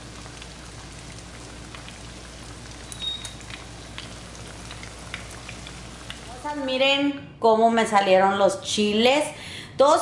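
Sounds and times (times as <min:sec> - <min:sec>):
oil popping and crackling: 0:00.0 - 0:06.7
food sizzling in oil: 0:00.0 - 0:06.8.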